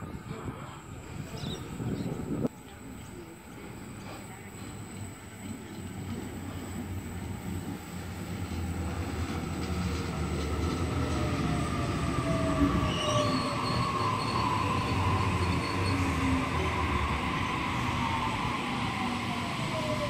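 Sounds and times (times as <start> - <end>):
train wheels rumbling: 1.1 - 20.0
wheel squeals: 12.8 - 16.6.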